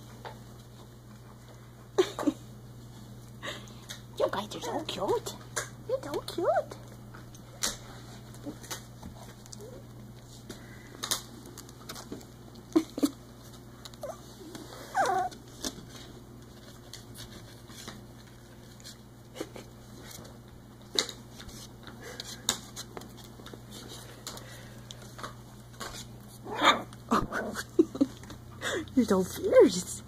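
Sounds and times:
paws and claws scratching: 6.7 - 27.0
puppies growling and yipping: 14.0 - 15.5, 26.4 - 28.0
puppy squeal: 14.8 - 15.4.

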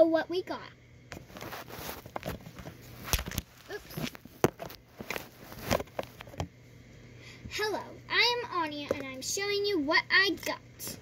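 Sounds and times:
phone handling knocks and rustles: 1.1 - 6.5.

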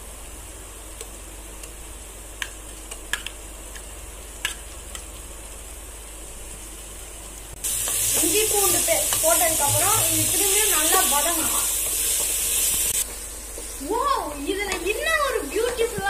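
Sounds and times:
food sizzling in metal pot: 4.2 - 16.0
loud sizzling hiss: 4.3 - 16.0.

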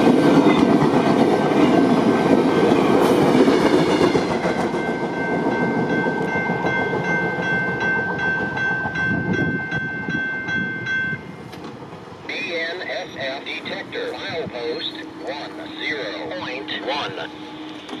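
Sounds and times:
train rumble: 0.0 - 18.0
crossing bell ringing: 3.9 - 11.5.

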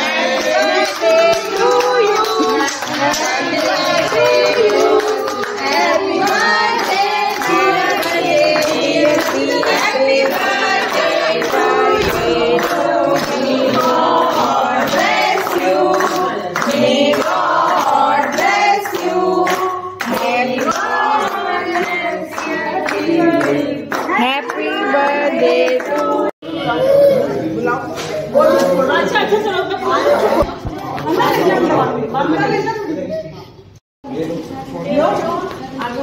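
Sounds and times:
people singing a celebration song: 0.0 - 31.6
hands clapping: 0.3 - 24.6.

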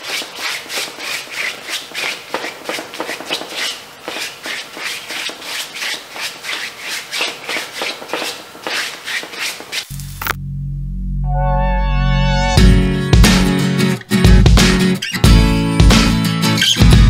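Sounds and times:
paintbrush scrubbing on canvas: 0.0 - 10.0.

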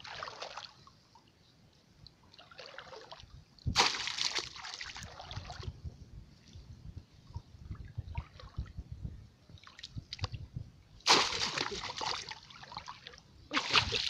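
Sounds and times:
muddy water sloshing: 2.3 - 5.8, 11.0 - 14.0
loud splash: 3.8 - 4.8, 11.1 - 12.4, 13.5 - 14.0.

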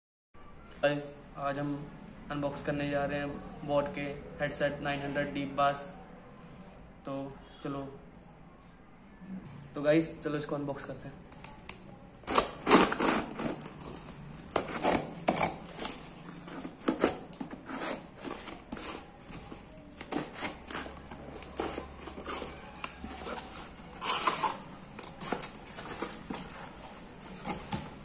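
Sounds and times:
tape and cardboard rustling: 11.3 - 28.0
box cutter slicing packing tape: 12.2 - 28.0.

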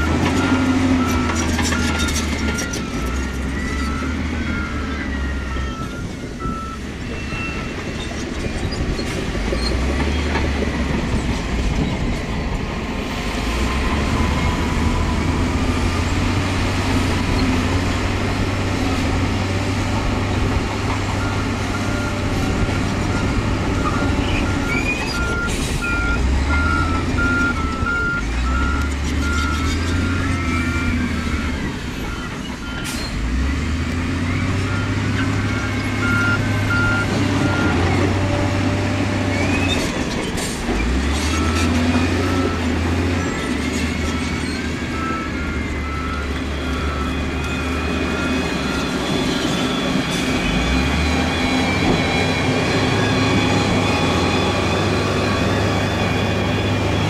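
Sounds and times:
reversing alarm beeping: 0.0 - 8.2, 21.1 - 38.1, 41.2 - 56.8
heavy diesel engine revving: 12.6 - 39.8, 40.4 - 57.0.

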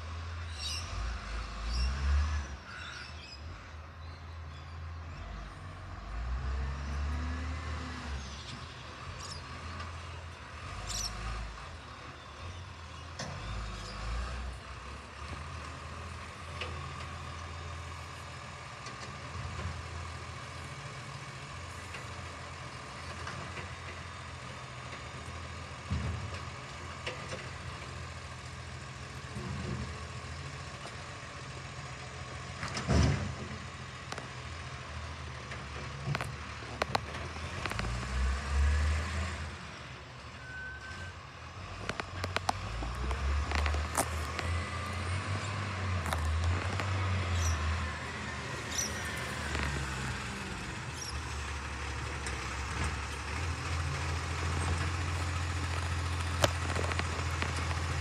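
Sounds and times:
garbage truck engine surging: 41.2 - 58.0.

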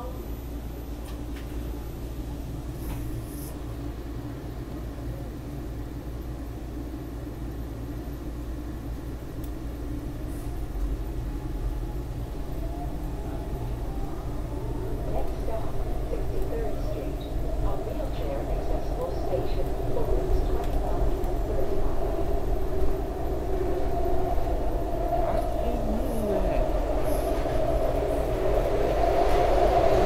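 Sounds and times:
subway car rumble and hum: 0.0 - 30.0
faint rising whine: 6.8 - 30.0.

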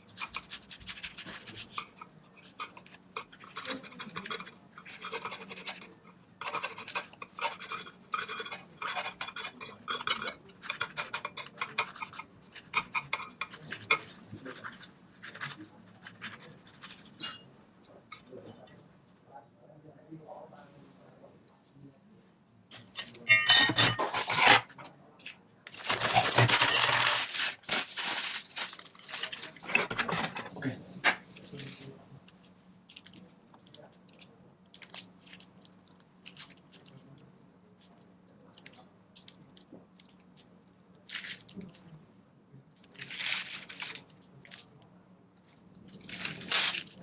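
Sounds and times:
rustling and scraping: 25.7 - 30.6, 45.4 - 47.0
piping bag clicks and rustles: 27.2 - 30.3, 31.4 - 41.9, 42.6 - 44.8, 45.4 - 47.0.

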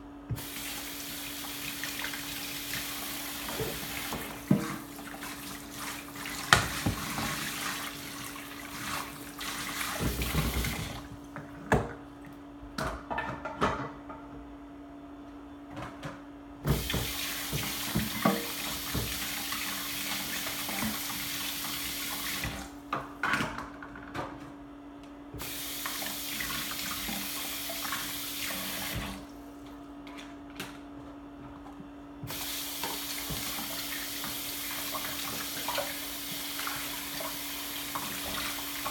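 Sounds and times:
faucet water running into sink: 0.3 - 11.0, 16.7 - 22.7, 25.4 - 29.3, 32.3 - 38.9.

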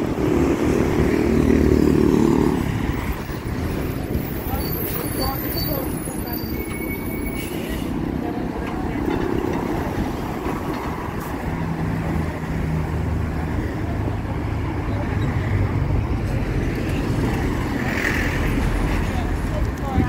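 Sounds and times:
street traffic: 0.0 - 20.0.

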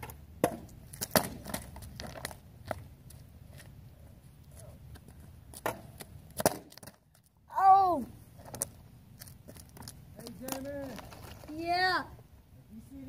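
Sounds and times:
boy exclaiming: 7.5 - 8.2, 11.5 - 12.2.

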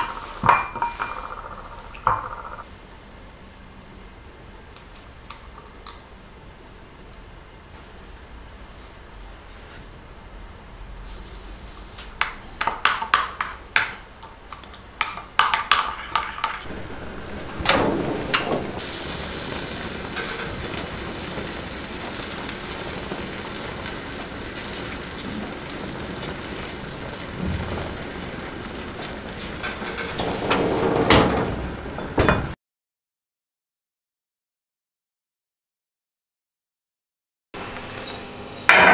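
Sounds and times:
oven door closing: 16.7 - 22.1, 27.2 - 32.6
fat sizzling and spitting: 18.7 - 29.6.

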